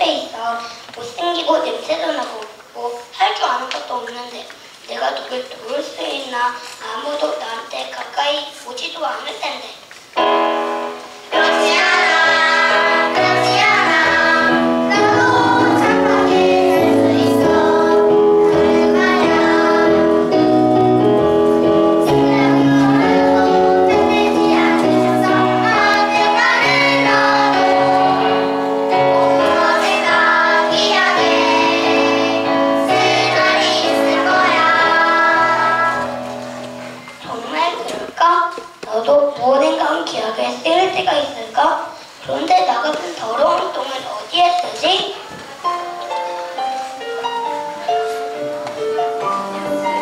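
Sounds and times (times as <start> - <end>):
children singing: 11.3 - 37.0.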